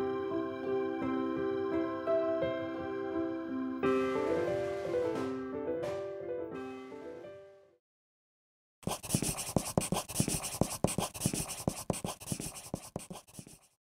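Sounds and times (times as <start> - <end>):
scratchy rustle: 8.8 - 13.8.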